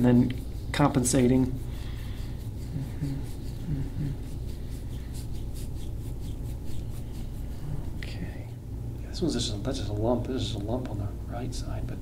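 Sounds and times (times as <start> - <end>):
fingers rubbing skin: 0.0 - 8.4
low room hum: 0.0 - 12.0.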